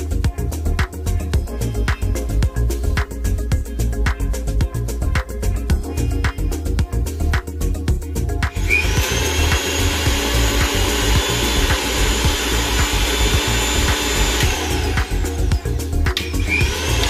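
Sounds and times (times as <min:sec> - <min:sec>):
background music with beat: 0:00.0 - 0:17.0
mixer grinder motor whine: 0:08.4 - 0:17.0.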